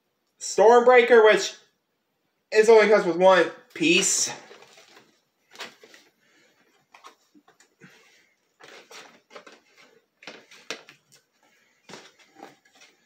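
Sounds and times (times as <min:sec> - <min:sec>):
cardboard rustling and scraping: 0:04.4 - 0:13.0.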